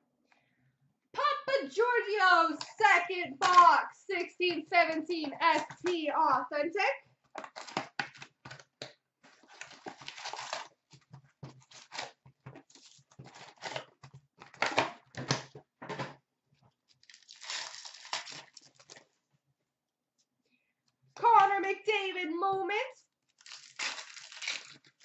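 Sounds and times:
packaging tearing: 0:07.4 - 0:08.6, 0:09.4 - 0:10.8, 0:11.6 - 0:13.9, 0:16.9 - 0:19.0, 0:23.3 - 0:25.0
wrapper crinkling: 0:09.3 - 0:10.8, 0:16.9 - 0:19.1, 0:23.3 - 0:25.0.

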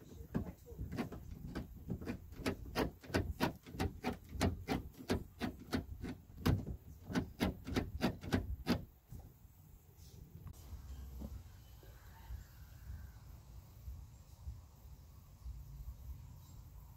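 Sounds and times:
rapid mechanical clicks: 0:00.3 - 0:08.9.

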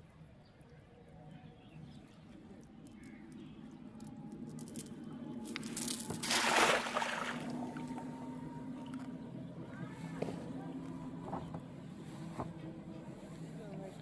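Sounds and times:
faint steady hum: 0:00.0 - 0:14.0
net splashing on water: 0:05.5 - 0:08.0.

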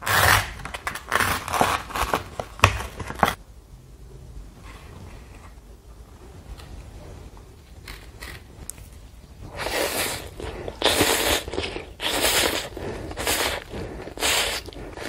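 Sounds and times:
person slurping noodles: 0:09.5 - 0:15.0.

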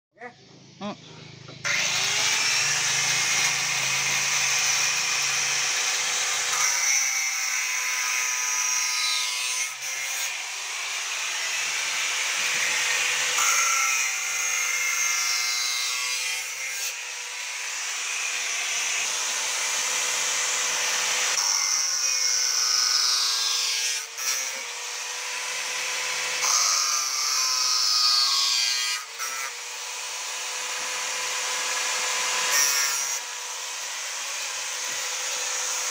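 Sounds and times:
angle grinder cutting wood: 0:00.2 - 0:35.9.

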